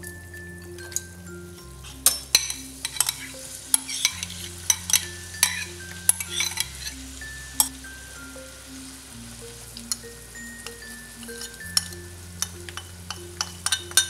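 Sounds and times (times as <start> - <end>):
bowls and spoon clinking on pot: 0.0 - 8.4, 9.8 - 14.0
light sizzle: 0.0 - 14.0.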